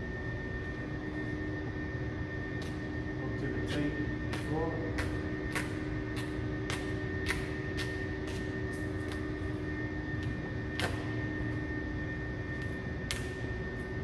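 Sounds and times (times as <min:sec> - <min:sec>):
steady low drone: 0:00.0 - 0:14.0.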